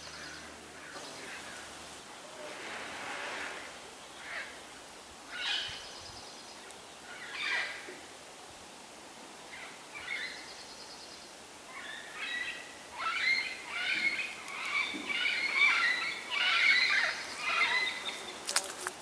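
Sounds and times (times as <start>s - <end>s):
parakeets calling harshly: 13.0s - 18.2s.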